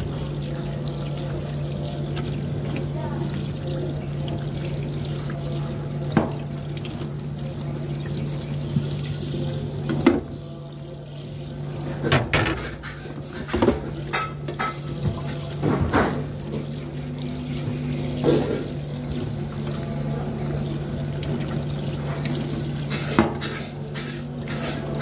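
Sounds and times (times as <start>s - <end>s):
tap water splashing in sink: 0.0s - 10.5s, 11.5s - 25.0s
sponge scrubbing plate: 22.1s - 25.0s.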